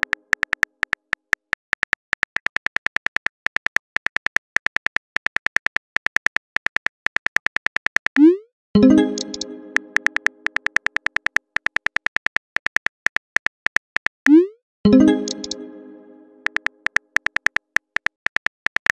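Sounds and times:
phone keyboard clicks: 0:09.2 - 0:14.2, 0:16.4 - 0:19.0.

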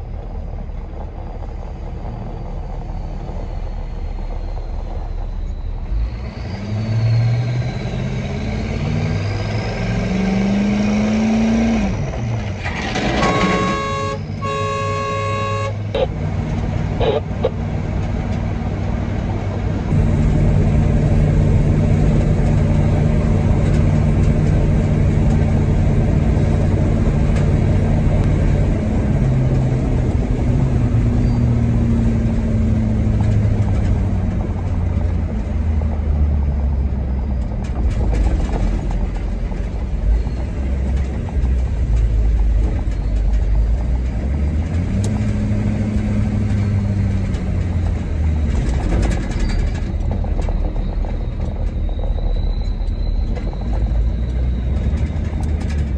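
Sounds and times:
truck engine running: 0:00.0 - 0:55.9
horn toot: 0:13.0 - 0:16.1.

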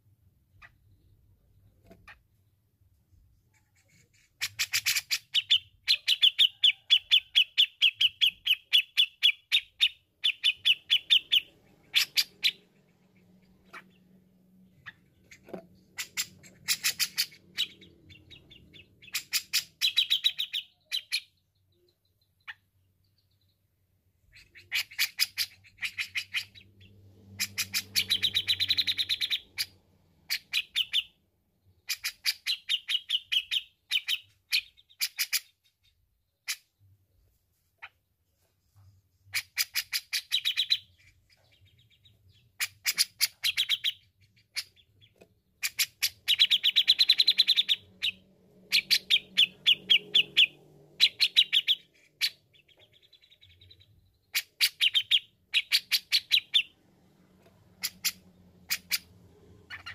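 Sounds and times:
bird singing chattering notes: 0:39.4 - 0:56.7.

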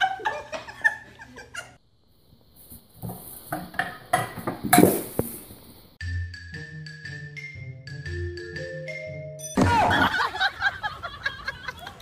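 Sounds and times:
light marimba-like music: 0:06.0 - 0:09.6.

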